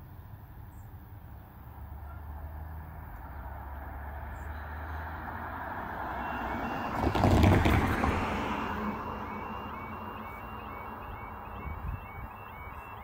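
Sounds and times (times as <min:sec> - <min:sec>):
car passing: 0:01.7 - 0:13.0
two-tone crossing alarm beeping: 0:05.6 - 0:13.0.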